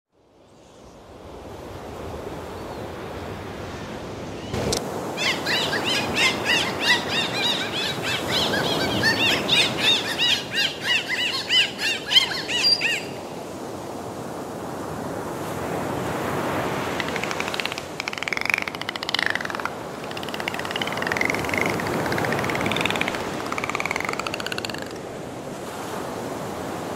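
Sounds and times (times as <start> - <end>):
dolphin clicks: 16.8 - 25.2
dolphins whistling underwater: 16.8 - 25.2.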